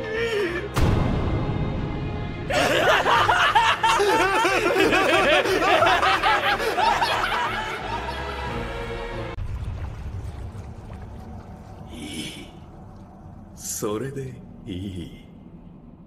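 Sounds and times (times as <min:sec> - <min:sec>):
music: 0:00.0 - 0:09.4
sudden loud hit: 0:00.8 - 0:02.5
men laughing maniacally: 0:02.5 - 0:09.3.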